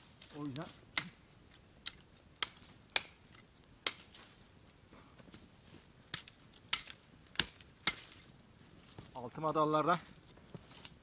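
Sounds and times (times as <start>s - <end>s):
dry branches snapping: 0.2s - 4.4s, 6.1s - 9.6s.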